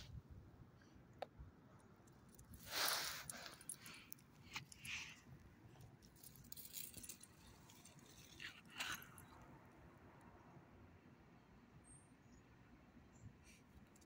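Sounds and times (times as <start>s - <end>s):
rustling of dry plant litter: 2.4s - 9.3s
dog leash jingle: 6.1s - 8.4s.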